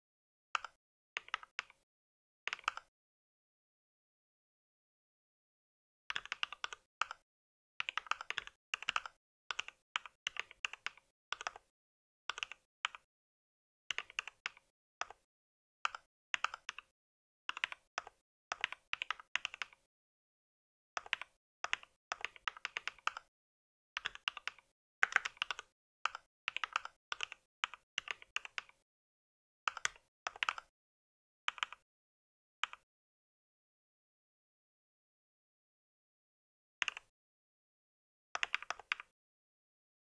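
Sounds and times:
mechanical keyboard typing: 0.6 - 1.8, 2.5 - 2.9, 6.1 - 7.2, 7.8 - 11.7, 12.3 - 13.0, 13.9 - 15.2, 15.9 - 16.9, 17.5 - 19.9, 21.0 - 23.3, 24.0 - 28.8, 29.7 - 30.7, 36.8 - 37.1, 38.4 - 39.1.

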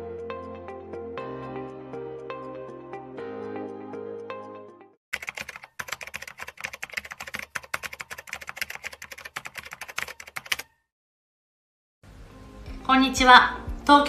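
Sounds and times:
background music: 0.0 - 5.0, 12.1 - 14.0
keyboard typing clicks: 5.2 - 10.8.

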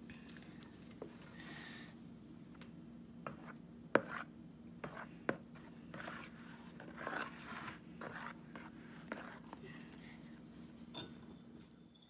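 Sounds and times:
faint steady hum: 0.0 - 12.0
spatula stirring wet slime: 3.2 - 10.4.

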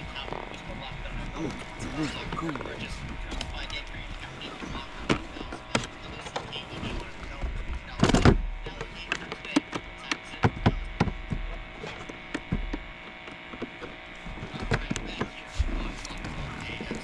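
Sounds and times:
electrical hum: 0.0 - 17.0
sharp taps and knocks: 9.1 - 15.7.

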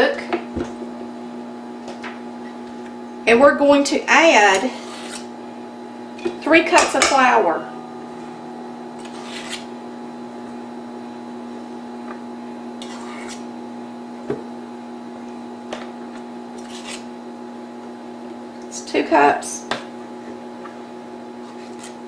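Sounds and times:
microwave oven humming: 0.0 - 22.0
spoon scraping metal bowl: 4.5 - 5.3, 9.0 - 9.7, 12.8 - 13.5.

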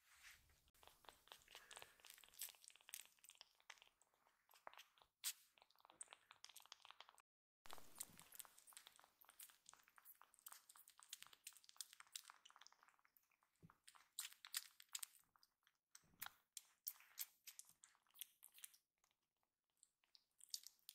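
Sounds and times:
kittens sucking wet clicks: 0.7 - 20.9.

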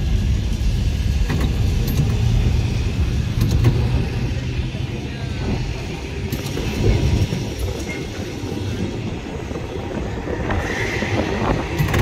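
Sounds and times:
tram rumbling on rails: 0.0 - 12.0
wheel clicks: 11.7 - 12.0.

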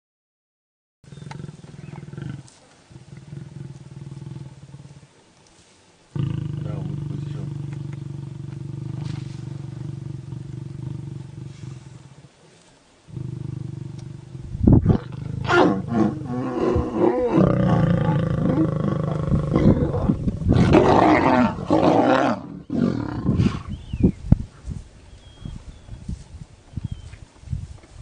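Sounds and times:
lions growling and snarling: 1.1 - 5.2, 6.2 - 23.9
low rumble: 13.6 - 17.0, 17.6 - 20.8.

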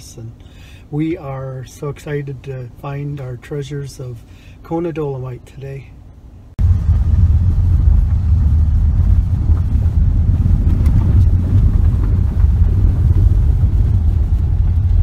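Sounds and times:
tyre and road rumble on gravel: 6.6 - 15.0.

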